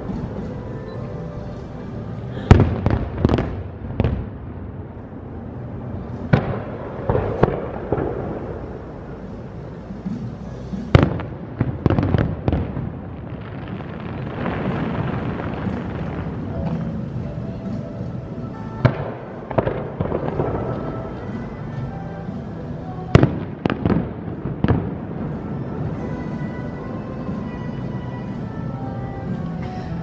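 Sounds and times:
distant fireworks shells bursting: 6.1 - 22.4, 23.0 - 26.6.

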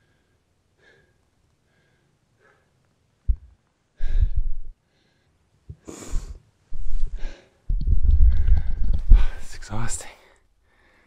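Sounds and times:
low rumble on microphone: 3.3 - 4.7, 6.2 - 9.9
heavy breathy gasps: 4.0 - 6.4, 7.0 - 7.6, 8.3 - 9.5.

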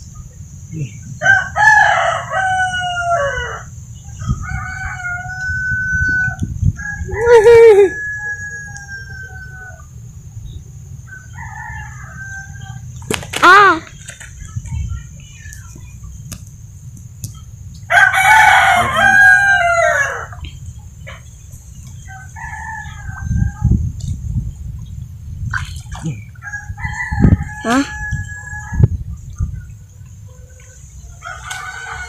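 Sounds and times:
rooster crowing: 1.2 - 9.9, 11.0 - 12.8, 17.9 - 20.4, 22.0 - 23.8, 26.4 - 29.0, 30.4 - 32.0
steady low rumble: 13.9 - 30.3.

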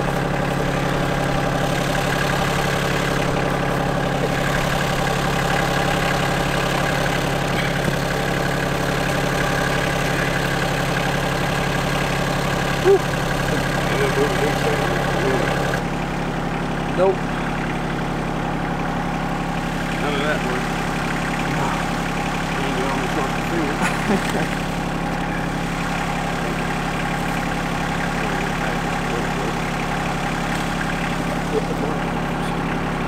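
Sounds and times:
tractor diesel engine idling: 0.0 - 33.0.

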